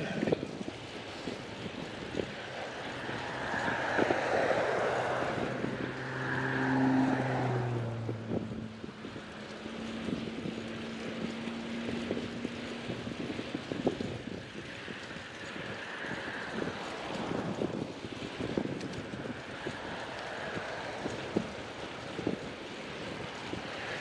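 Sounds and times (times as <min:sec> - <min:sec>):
wind on microphone: 0:00.0 - 0:24.0
vehicle engine passing: 0:01.7 - 0:13.4.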